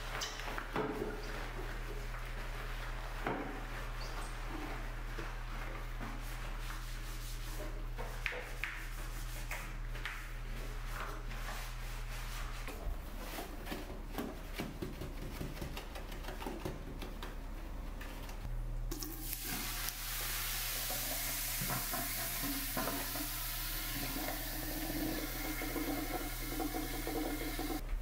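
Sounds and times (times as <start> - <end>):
fizzing hiss of foam: 19.2 - 24.0.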